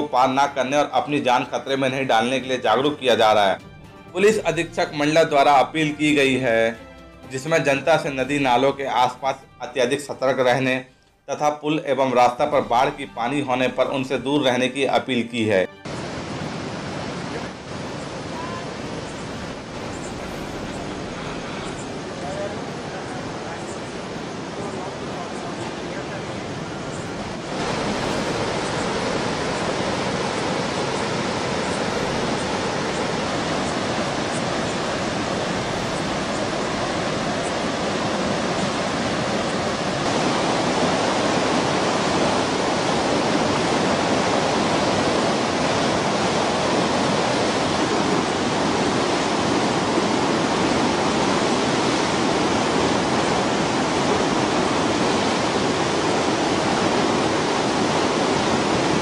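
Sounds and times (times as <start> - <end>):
floodwater rushing: 15.7 - 59.0.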